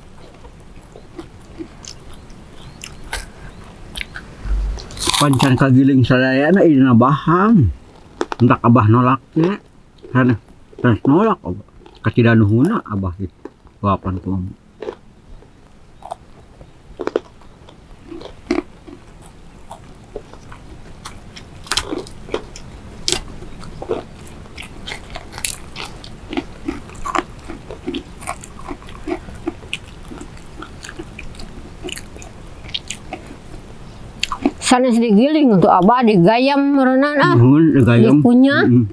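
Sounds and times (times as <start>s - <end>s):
chewing and crunching: 0.0s - 5.7s, 7.8s - 8.6s, 9.4s - 34.8s
mouth clicks: 1.8s - 5.4s.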